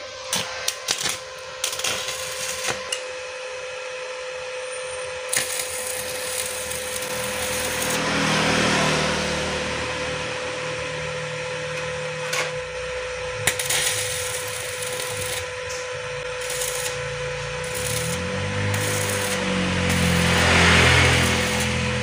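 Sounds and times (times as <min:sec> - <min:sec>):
welding arc crackling and hissing: 0:00.0 - 0:03.2, 0:05.3 - 0:09.2, 0:11.7 - 0:22.0.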